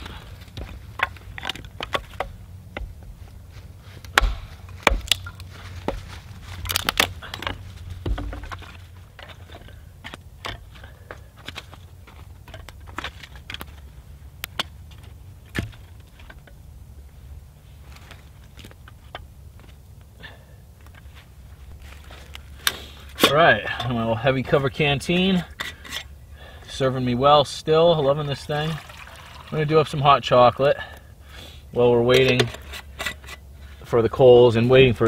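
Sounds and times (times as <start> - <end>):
split sticks knocking together: 0.0 - 3.0, 4.0 - 16.6
wooden sticks being stacked: 0.0 - 16.6, 32.1 - 33.8
hatchet chopping wood: 4.1 - 6.0.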